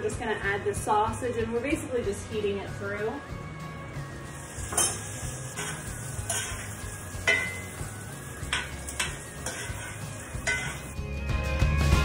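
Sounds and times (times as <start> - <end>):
sausage sizzling in butter: 4.2 - 11.0
utensil scraping and clinking pan: 4.4 - 11.0.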